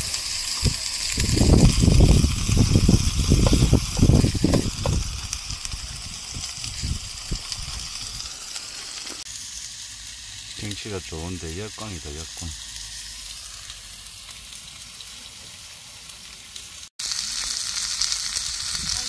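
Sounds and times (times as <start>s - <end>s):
meat sizzling on a grill: 0.0s - 19.0s
low thumps and rumbles: 1.1s - 8.3s.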